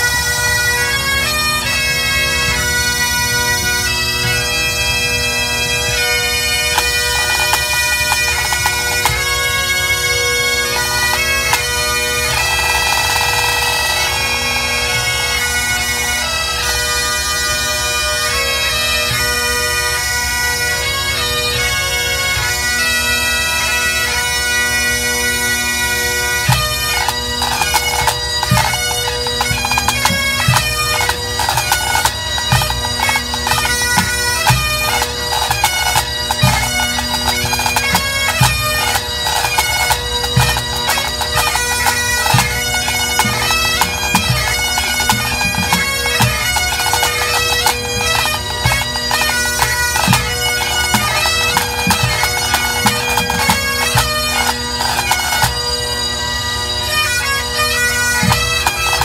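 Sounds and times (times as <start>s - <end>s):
bagpipes playing melody: 0.0s - 59.0s
snare drums: 12.3s - 15.1s, 29.4s - 49.2s, 49.9s - 55.6s.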